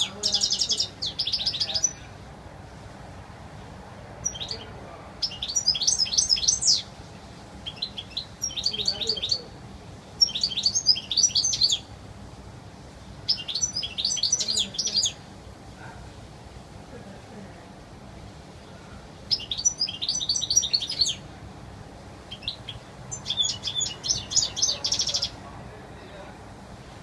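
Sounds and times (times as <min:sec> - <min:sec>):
goldfinch twittering song: 0:00.0 - 0:02.1, 0:04.2 - 0:07.0, 0:07.6 - 0:09.5, 0:10.2 - 0:11.9, 0:13.2 - 0:15.2, 0:19.3 - 0:21.2, 0:22.3 - 0:25.4.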